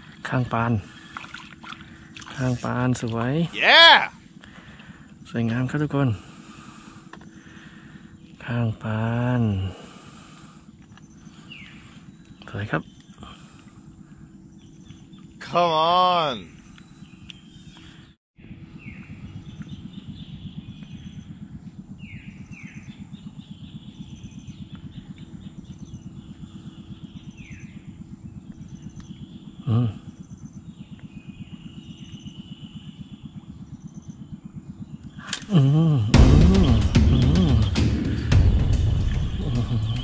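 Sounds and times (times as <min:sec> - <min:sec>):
brief vocal sound: 0:03.6 - 0:04.1, 0:15.4 - 0:16.4.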